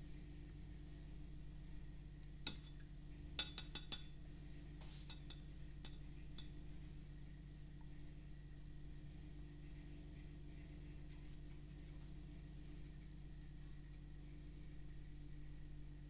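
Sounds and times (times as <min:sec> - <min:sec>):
low steady hum: 0:00.0 - 0:16.0
paintbrush clinking against cup: 0:03.4 - 0:04.1, 0:05.0 - 0:06.6.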